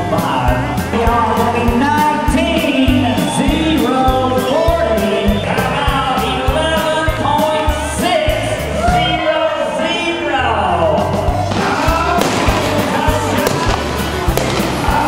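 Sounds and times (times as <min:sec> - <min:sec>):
bass: 0:00.0 - 0:15.0
person singing: 0:10.1 - 0:15.0
drum beat: 0:11.3 - 0:15.0.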